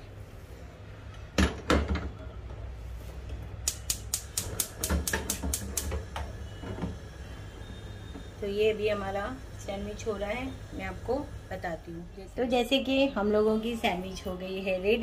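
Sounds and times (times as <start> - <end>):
spark igniter clicking: 3.6 - 6.3
sandwich maker knocking on grate: 3.7 - 6.3.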